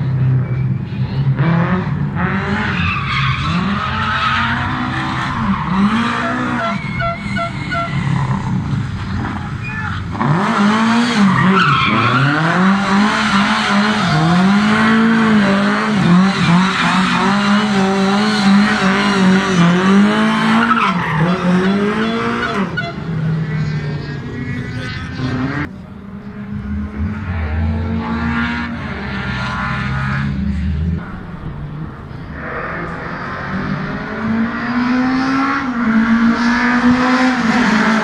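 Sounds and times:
rally car engine revving: 0:00.0 - 0:38.0
tyres squealing and skidding: 0:02.2 - 0:25.7.

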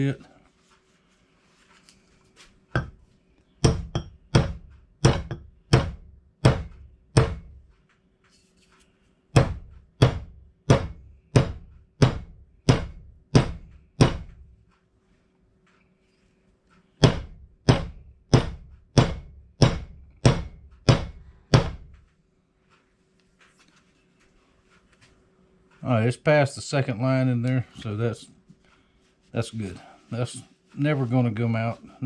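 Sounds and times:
hammering on wooden handle: 0:02.8 - 0:03.0, 0:03.6 - 0:07.7, 0:09.3 - 0:14.5, 0:17.0 - 0:22.0.

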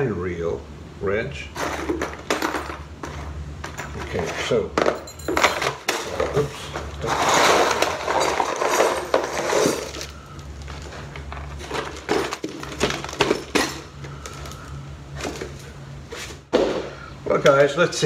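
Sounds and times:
metal rings clinking: 0:04.8 - 0:05.9.

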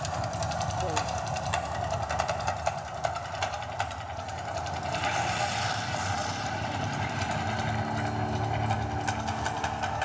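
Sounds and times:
low rumble: 0:00.0 - 0:10.0
flame jets rushing: 0:03.1 - 0:09.9.

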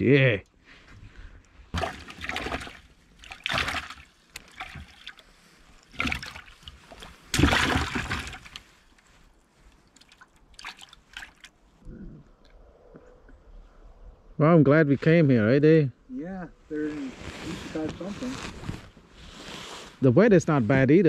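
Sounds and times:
fish splashing in water: 0:01.8 - 0:08.6
rustling: 0:16.7 - 0:20.1.

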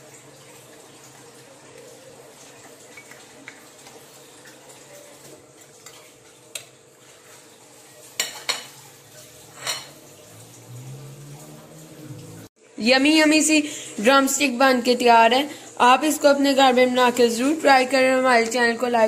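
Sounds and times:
metal utensil clinking on plate: 0:08.2 - 0:08.8, 0:09.5 - 0:10.0
low hum: 0:10.3 - 0:12.5.

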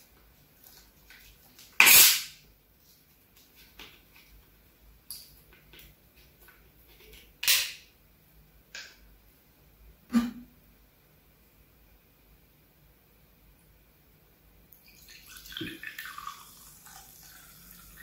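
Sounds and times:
soda bottle hissing: 0:01.8 - 0:02.3.

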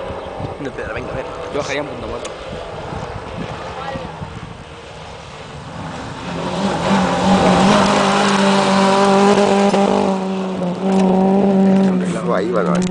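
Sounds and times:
rally car engine high-revving: 0:00.0 - 0:12.9.

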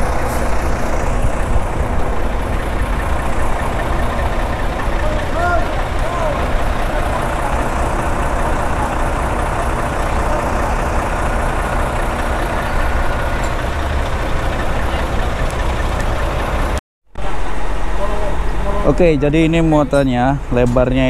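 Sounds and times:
truck diesel engine idling: 0:00.0 - 0:21.0.

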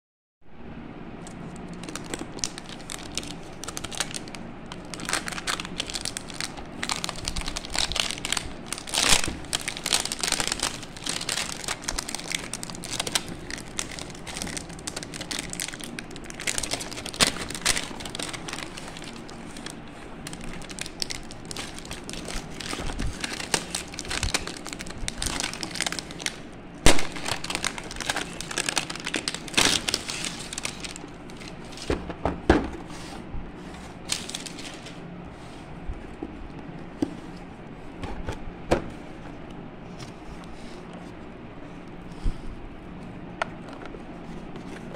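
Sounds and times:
plastic shrink-wrap crinkling: 0:01.2 - 0:31.9, 0:34.0 - 0:35.1.

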